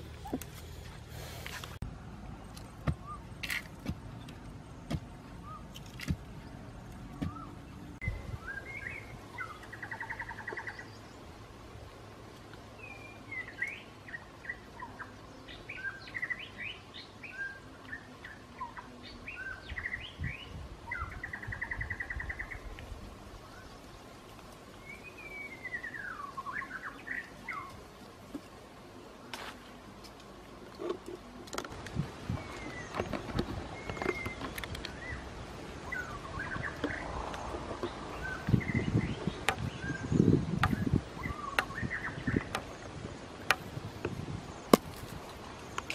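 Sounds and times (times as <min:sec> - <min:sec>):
small birds chirping: 0:00.0 - 0:45.9
hands digging into soil: 0:44.7 - 0:45.4.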